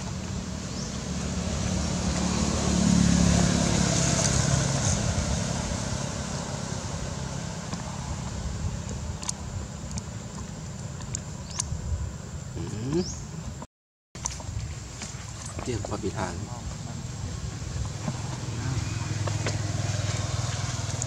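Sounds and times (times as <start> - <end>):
motor vehicle passing by: 0.0 - 9.3, 16.0 - 21.0.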